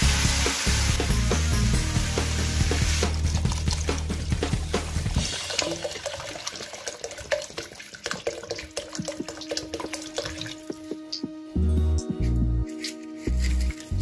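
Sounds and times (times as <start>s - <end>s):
low bass music beat: 0.0s - 5.3s, 10.5s - 14.0s
water pouring into a pan: 0.0s - 11.2s.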